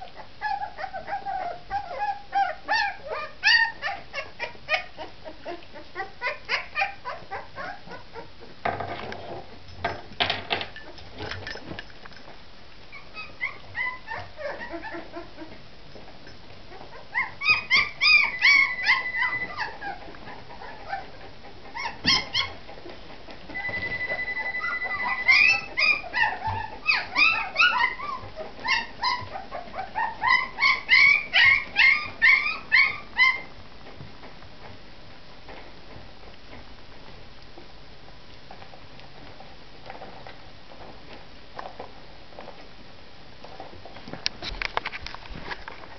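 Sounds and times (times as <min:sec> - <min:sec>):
puppies whimpering and squealing: 0:00.0 - 0:08.5, 0:12.9 - 0:33.5.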